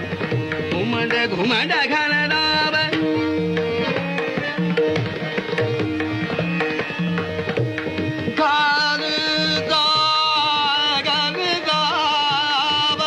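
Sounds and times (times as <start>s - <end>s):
tabla playing fast rhythm: 0.0s - 13.0s
person singing: 8.3s - 13.0s.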